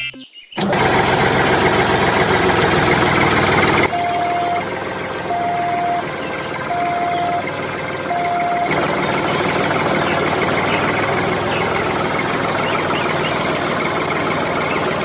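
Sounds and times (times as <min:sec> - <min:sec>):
tractor engine running: 0:00.0 - 0:15.0
reversing alarm beeping: 0:03.9 - 0:04.7, 0:05.3 - 0:07.5, 0:08.1 - 0:10.2.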